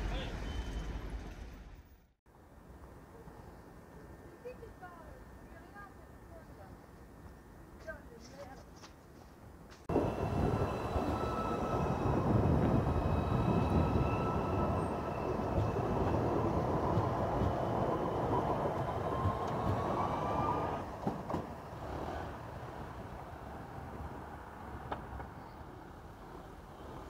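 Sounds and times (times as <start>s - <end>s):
tram wheels rumbling on rails: 0.0s - 1.9s, 9.9s - 27.0s.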